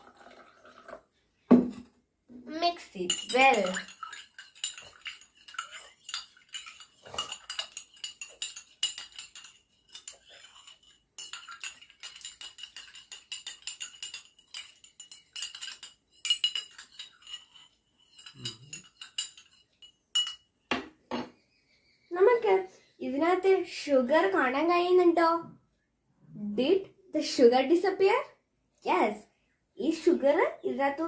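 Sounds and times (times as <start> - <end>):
spoon clinking against glass: 3.0 - 20.5.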